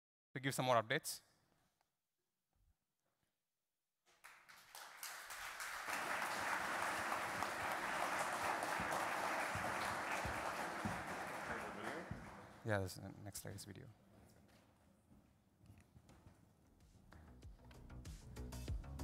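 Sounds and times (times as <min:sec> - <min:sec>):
audience applause: 0:04.2 - 0:12.6.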